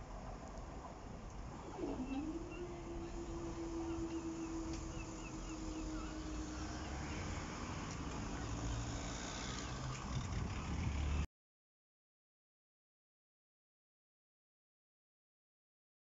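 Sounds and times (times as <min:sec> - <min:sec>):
road traffic rumble: 0:00.0 - 0:11.3
hydraulic pump motor humming: 0:01.4 - 0:11.2.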